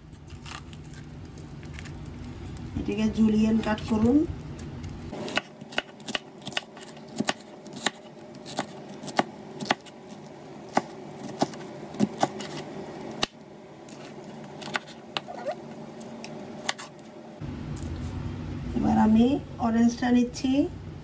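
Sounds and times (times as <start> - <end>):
knife slicing pepper: 5.1 - 15.6.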